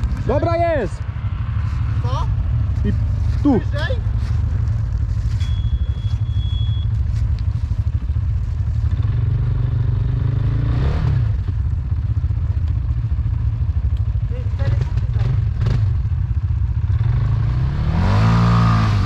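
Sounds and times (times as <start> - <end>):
quad bike engine under load: 0.0 - 19.0
leaves crackling under tyres: 1.4 - 9.0.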